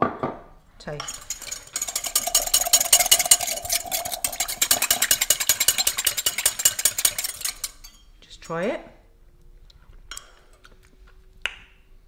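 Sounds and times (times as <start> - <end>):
wire whisk clinking against glass: 1.0 - 8.1.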